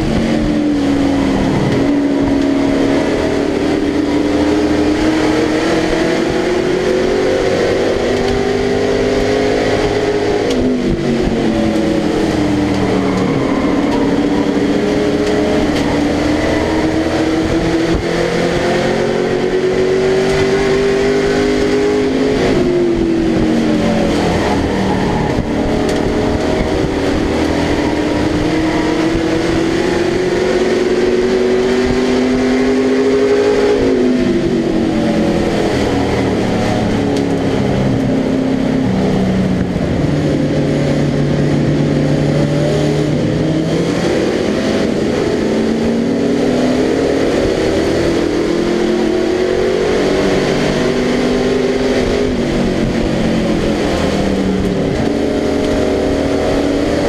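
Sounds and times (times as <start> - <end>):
race truck engine revving: 0.0 - 57.0.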